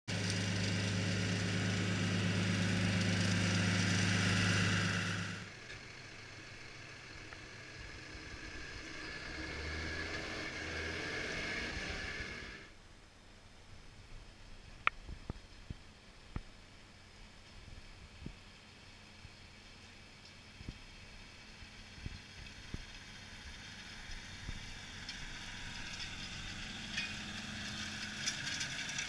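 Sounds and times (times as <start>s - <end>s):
tractor diesel engine running: 0.1s - 10.6s, 16.7s - 29.0s.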